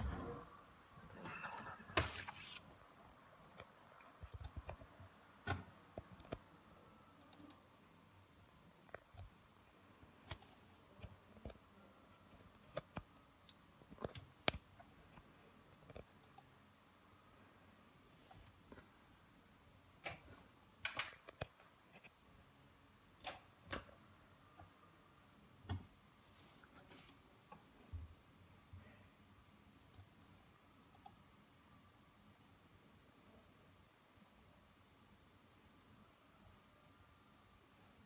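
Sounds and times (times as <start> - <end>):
faint irregular clicks: 3.5 - 5.2, 7.1 - 7.8, 12.3 - 16.5, 26.6 - 27.7, 29.8 - 30.2, 30.9 - 31.2.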